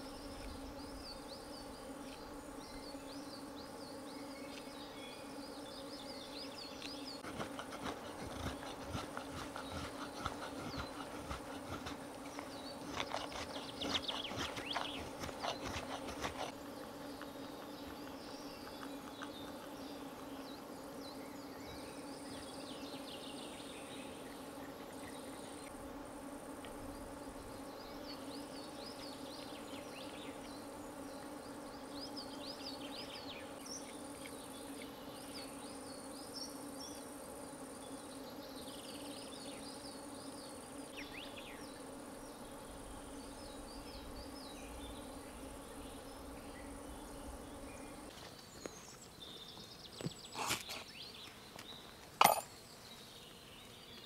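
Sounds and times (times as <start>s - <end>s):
small birds chirping: 0.0s - 25.7s, 37.9s - 54.0s
flying insects buzzing: 0.0s - 54.0s
knife shaving wood: 7.2s - 16.6s.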